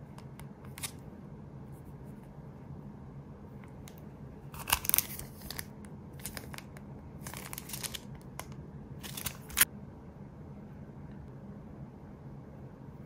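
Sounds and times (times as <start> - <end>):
plastic packaging crinkling: 4.6 - 9.7.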